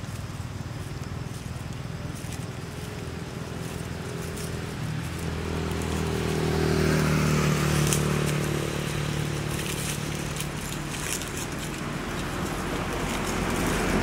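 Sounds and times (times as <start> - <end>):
light crackles: 0.0 - 14.0.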